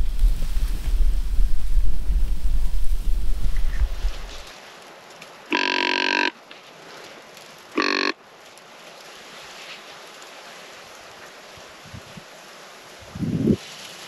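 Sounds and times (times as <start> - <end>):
buzzy deer call: 5.5 - 6.4, 7.7 - 8.2.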